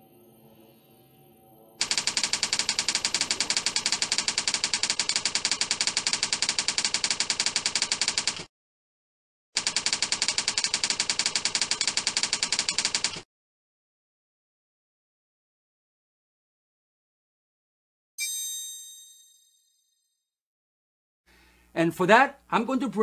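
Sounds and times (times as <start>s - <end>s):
rapid keyboard typing clicks: 1.8s - 8.5s, 9.6s - 13.2s.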